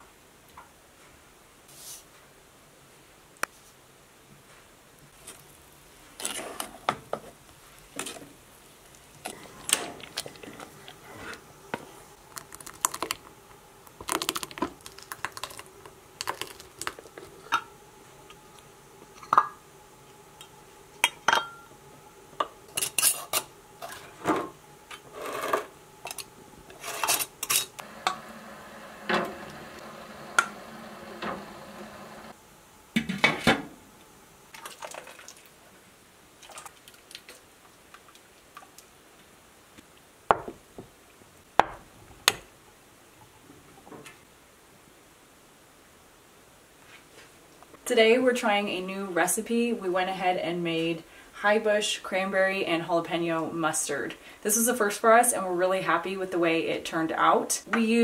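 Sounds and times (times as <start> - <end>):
glass jars and pot lid clinking: 21.0 - 21.7.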